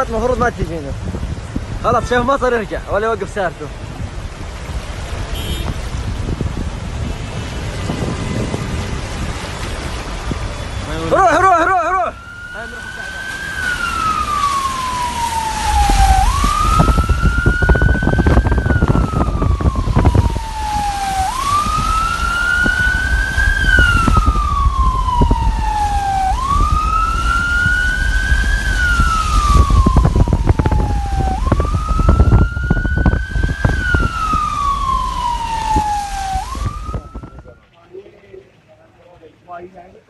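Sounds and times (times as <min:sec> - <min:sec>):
loud rumbling crackling noise: 0:00.0 - 0:11.2, 0:12.6 - 0:37.7
emergency siren wailing: 0:07.0 - 0:37.8.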